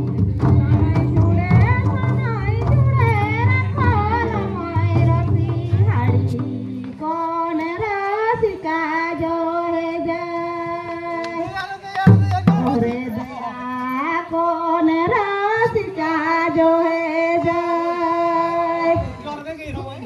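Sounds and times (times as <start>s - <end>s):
barrel drum strokes: 0.0s - 7.0s
person folk singing in high voice: 0.0s - 19.2s.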